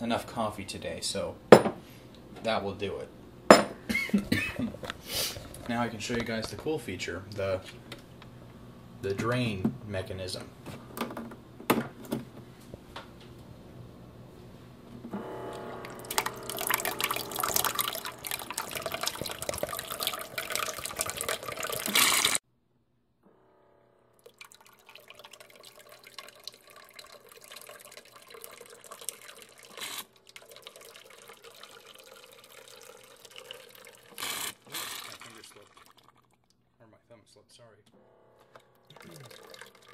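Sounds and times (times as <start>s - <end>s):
water stream splashing into container: 15.2s - 22.4s, 24.2s - 36.5s, 38.9s - 39.9s
faint water trickle: 15.5s - 22.0s, 24.2s - 36.8s, 38.4s - 39.9s.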